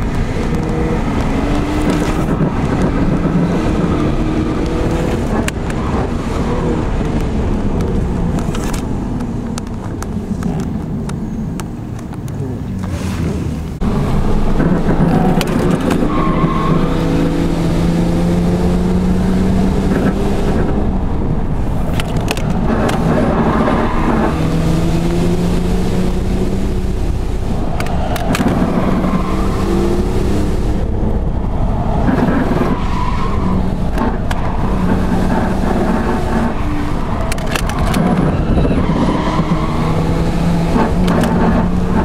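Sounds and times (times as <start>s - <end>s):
car engines at high revs: 0.0s - 42.0s
tyre noise from drifting car: 12.9s - 18.2s, 21.8s - 30.8s, 31.8s - 42.0s.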